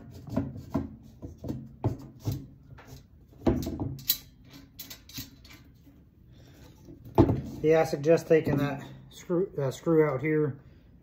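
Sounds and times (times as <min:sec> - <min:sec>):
metal hardware clicking and knocking: 0:01.3 - 0:06.0.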